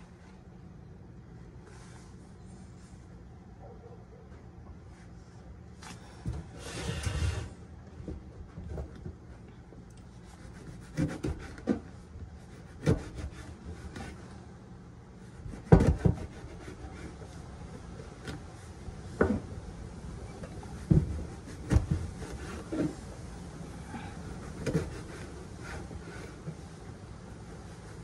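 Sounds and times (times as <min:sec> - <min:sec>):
knife chopping on wooden board: 0:12.7 - 0:13.4, 0:15.5 - 0:16.6.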